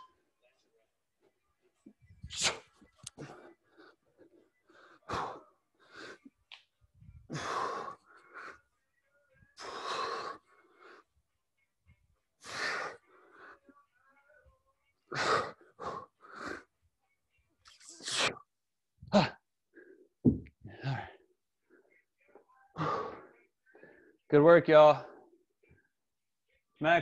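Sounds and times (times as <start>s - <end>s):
man breathing hard: 7.2s - 8.6s, 9.6s - 11.1s.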